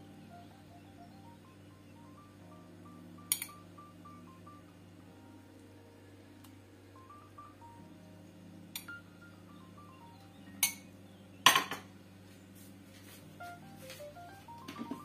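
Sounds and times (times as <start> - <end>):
soft background music: 0.0 - 15.0.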